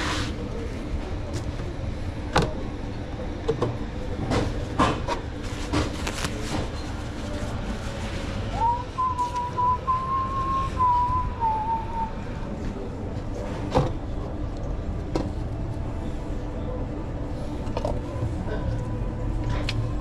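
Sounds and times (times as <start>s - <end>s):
person whistling: 8.5s - 12.3s.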